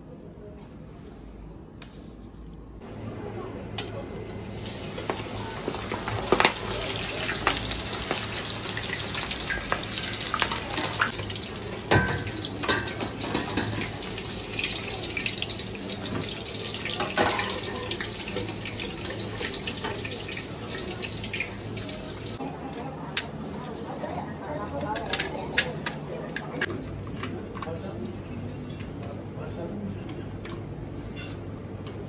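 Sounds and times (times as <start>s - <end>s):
deep-frying sizzle and crackle: 4.3s - 22.5s.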